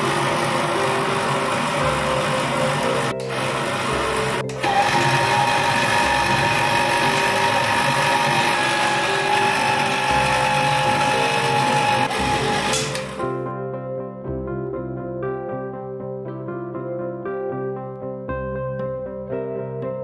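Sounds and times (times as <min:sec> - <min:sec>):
electric grinder motor running: 0:00.0 - 0:13.3
background music: 0:00.0 - 0:20.0.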